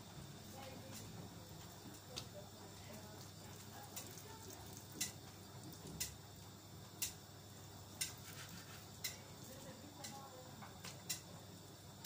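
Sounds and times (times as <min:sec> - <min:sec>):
clock ticking: 0:10.0 - 0:10.2.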